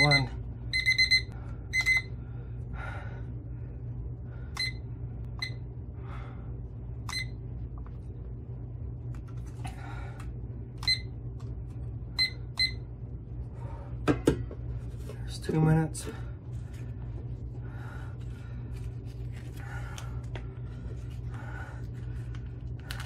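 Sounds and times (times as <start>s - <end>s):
digital timer beeping: 0.0s - 2.1s.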